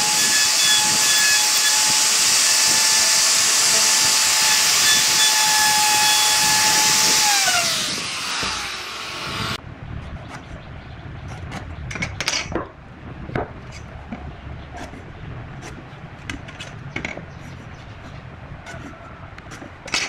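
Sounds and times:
electric wood router whining: 0.0 - 9.6.

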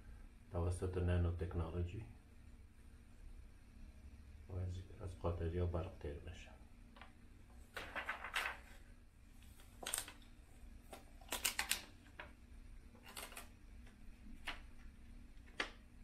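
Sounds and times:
plastic sheets crackling and clicking: 7.7 - 8.8, 9.4 - 16.0.

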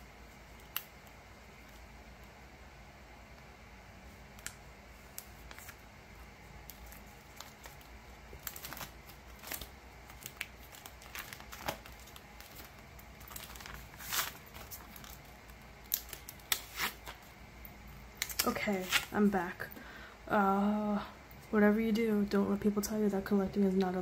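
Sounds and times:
plastic sleeves crinkling: 4.3 - 17.4, 18.1 - 19.4.

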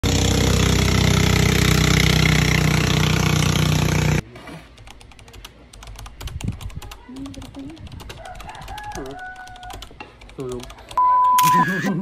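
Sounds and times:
small engine running: 0.0 - 4.2.

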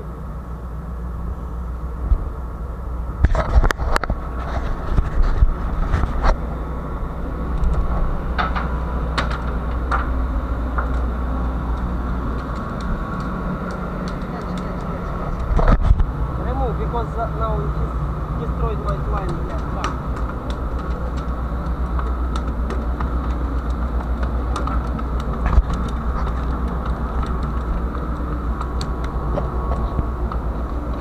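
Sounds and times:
ship machinery rumbling: 0.0 - 31.0
sharp knocks and clatter: 7.6 - 11.1.

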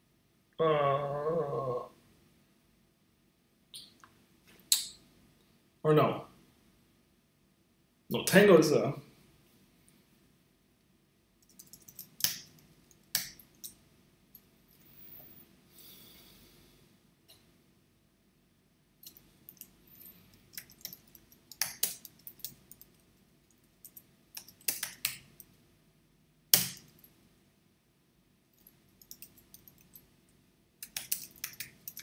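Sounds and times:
keyboard typing: 11.4 - 13.8, 19.0 - 25.5, 28.6 - 30.0, 30.8 - 32.0.

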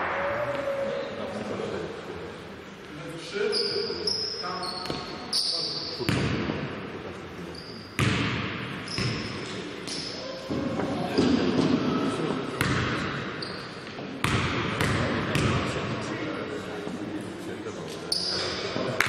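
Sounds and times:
shoe squeaks: 3.4 - 6.1, 7.4 - 8.0, 8.9 - 10.3, 13.4 - 13.8, 18.1 - 18.6
basketball bouncing on court: 8.0 - 9.3, 12.6 - 13.2, 14.2 - 15.7.

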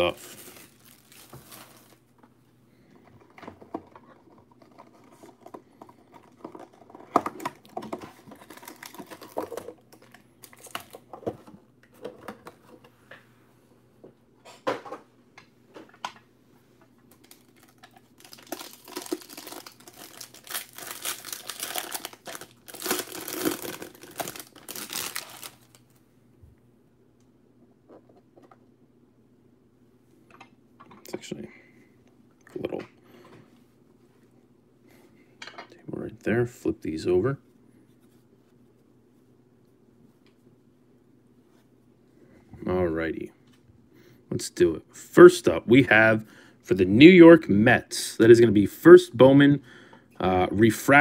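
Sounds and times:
cardboard and wrapper rustling: 0.0 - 2.1, 3.9 - 11.3, 17.2 - 25.8
plastic wrap crinkling: 0.0 - 2.1, 3.9 - 11.1, 17.1 - 26.0.

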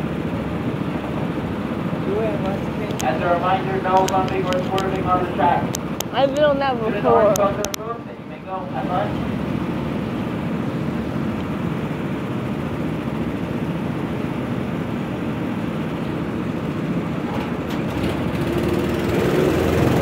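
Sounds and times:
go-kart engines idling: 0.0 - 20.0
engine revving: 2.0 - 7.8, 17.4 - 20.0.

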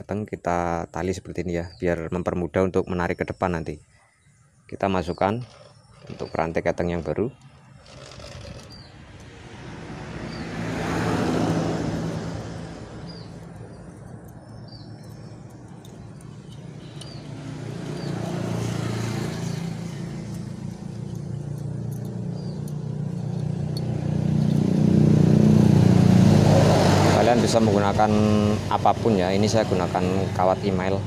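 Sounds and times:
passing road traffic: 4.3 - 31.0.

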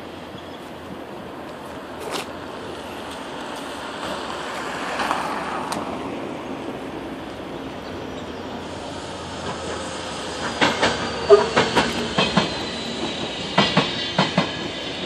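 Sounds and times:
vehicle traffic: 0.0 - 13.6
wind: 0.0 - 15.0.

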